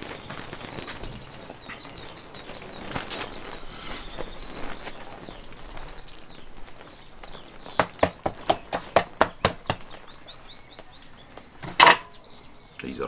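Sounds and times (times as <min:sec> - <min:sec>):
birds chirping faintly: 0:00.0 - 0:13.0
hand patting meat: 0:07.8 - 0:10.0
meat slapping on wooden board: 0:07.8 - 0:10.0.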